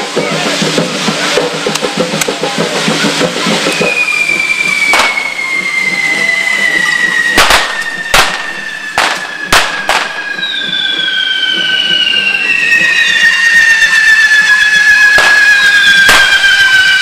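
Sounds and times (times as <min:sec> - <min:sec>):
drumming: 0:00.0 - 0:17.0
fountain fireworks hissing: 0:00.0 - 0:17.0
firecracker bangs: 0:00.4 - 0:17.0
long falling whistle: 0:03.5 - 0:17.0.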